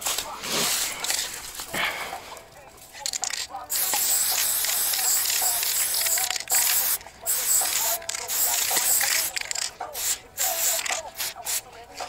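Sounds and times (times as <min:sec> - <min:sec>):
spray paint can hissing: 0:03.0 - 0:12.0.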